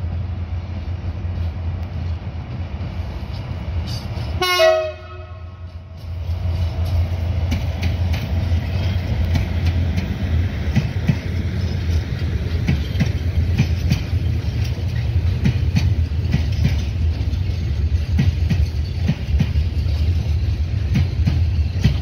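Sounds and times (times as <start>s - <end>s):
train rumbling past: 0.0s - 22.0s
wheels clacking on rail joints: 5.0s - 22.0s.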